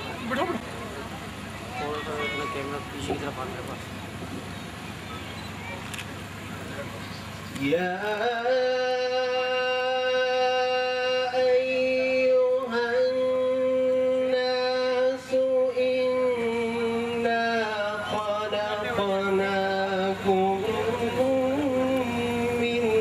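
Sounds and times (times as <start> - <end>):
man chanting melodically: 7.6 - 23.0.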